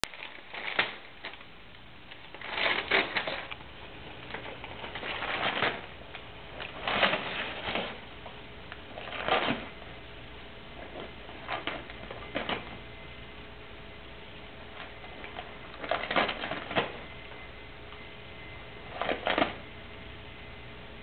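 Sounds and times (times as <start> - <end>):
packing paper crinkling: 0.0 - 10.0, 10.7 - 12.9, 14.6 - 17.1.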